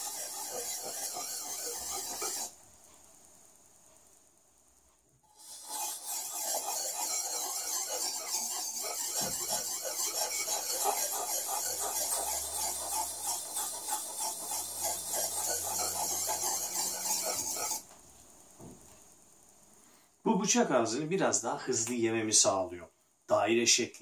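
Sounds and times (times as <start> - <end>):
blade scraping on whetstone: 0.0 - 2.5, 5.4 - 17.8.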